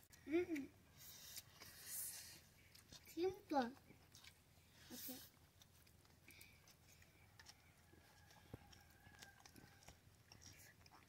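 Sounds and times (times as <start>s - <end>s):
chewing clicks: 5.6s - 11.0s.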